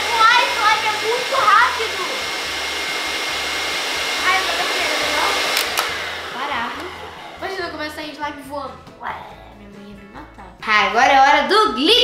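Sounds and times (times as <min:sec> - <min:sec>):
stand mixer motor churning: 0:00.0 - 0:08.3
sharp clicks: 0:05.5 - 0:06.0.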